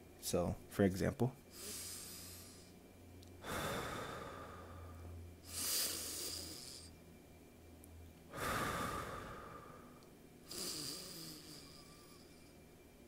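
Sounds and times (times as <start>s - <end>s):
deep breaths: 1.5s - 2.8s, 3.4s - 7.0s, 8.3s - 12.6s.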